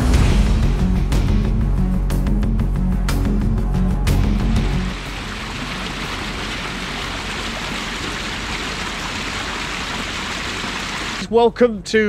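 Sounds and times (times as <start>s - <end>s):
background music: 0.0s - 6.4s
stream rushing over stones: 4.9s - 11.2s.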